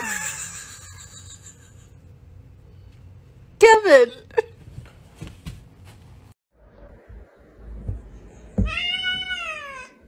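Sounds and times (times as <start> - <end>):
cat meowing: 8.6 - 10.0.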